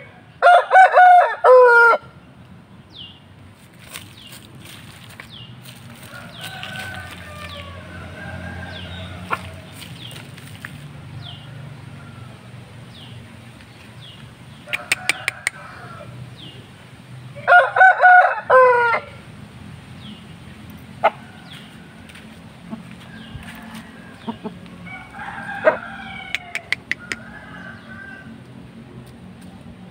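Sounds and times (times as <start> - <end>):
faint rooster crowing: 0.0 - 2.1, 6.0 - 9.7, 11.2 - 12.7, 14.7 - 16.2, 17.4 - 19.2, 21.0 - 28.6
rooster crowing: 0.0 - 2.1, 6.0 - 9.7, 11.2 - 12.5, 14.7 - 16.2, 17.4 - 19.2, 21.0 - 22.2, 23.0 - 28.5.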